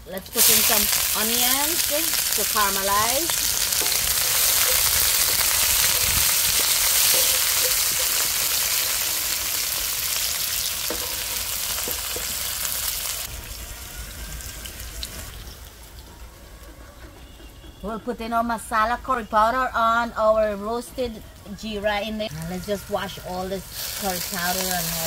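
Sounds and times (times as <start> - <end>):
onions sizzling in hot oil: 0.0 - 15.7, 22.3 - 25.0.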